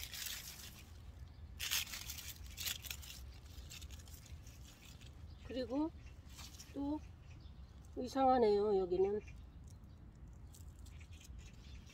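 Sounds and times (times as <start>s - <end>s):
vines and leaves rustling and tearing: 0.0s - 6.9s.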